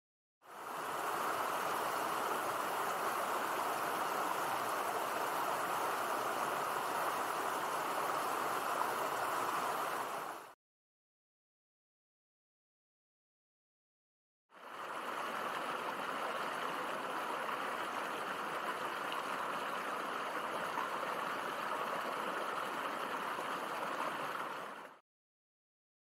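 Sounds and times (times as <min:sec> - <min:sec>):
creek running over stones: 0:00.5 - 0:10.5, 0:14.6 - 0:25.0.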